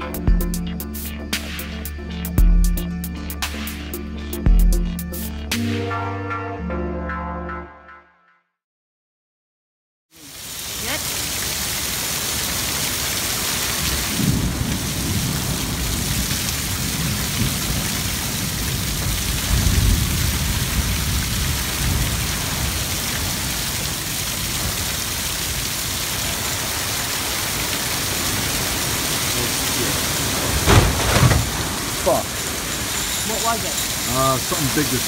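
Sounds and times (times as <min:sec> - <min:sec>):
heavy rain pouring: 0:10.2 - 0:35.0.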